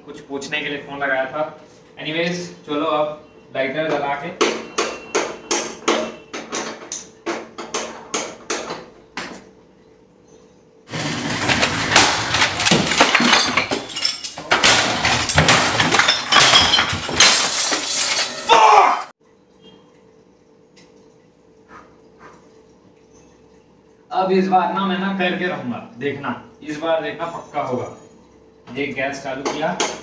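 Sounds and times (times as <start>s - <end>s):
crashing and smashing: 10.9s - 18.8s.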